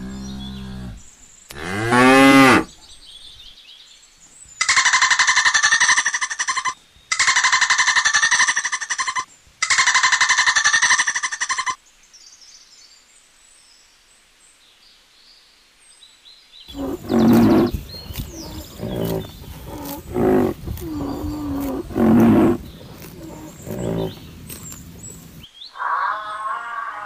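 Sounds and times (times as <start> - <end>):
rhinoceros calling: 16.7 - 27.0.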